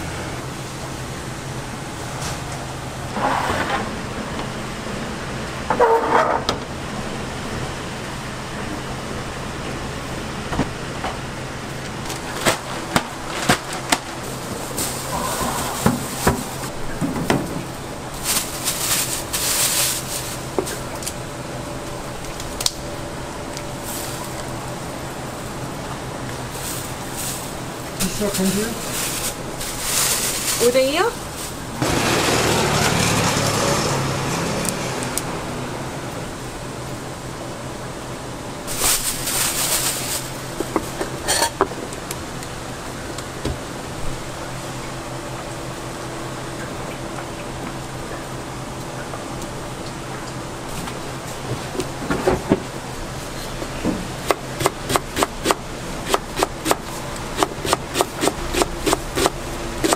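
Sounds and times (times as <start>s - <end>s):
fan hum: 0.0s - 59.9s
plastic bag rustling: 12.0s - 17.0s, 17.7s - 21.2s, 26.4s - 31.8s, 38.6s - 41.3s.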